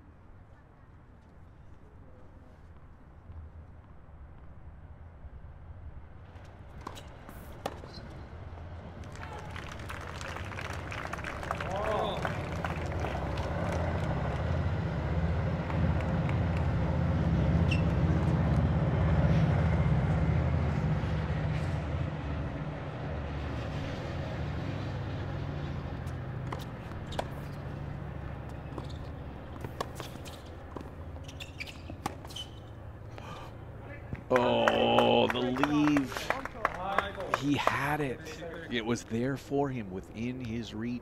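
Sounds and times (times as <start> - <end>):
passing vehicle engine rumble: 6.6 - 40.9.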